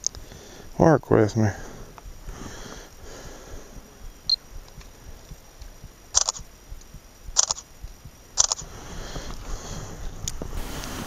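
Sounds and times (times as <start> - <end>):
camera shutter clicks: 6.1 - 6.5, 7.4 - 7.7, 8.4 - 8.7.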